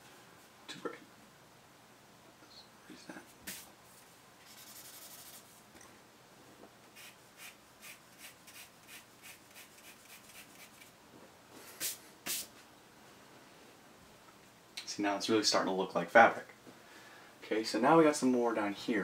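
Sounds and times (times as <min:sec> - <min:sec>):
pencil scratching on paper: 0:04.5 - 0:05.5.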